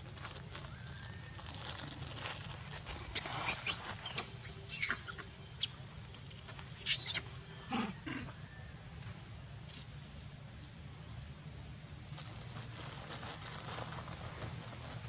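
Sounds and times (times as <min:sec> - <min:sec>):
macaques squealing: 0:03.1 - 0:05.7, 0:06.7 - 0:08.3
low falling monkey call: 0:03.2 - 0:05.7, 0:06.7 - 0:08.7.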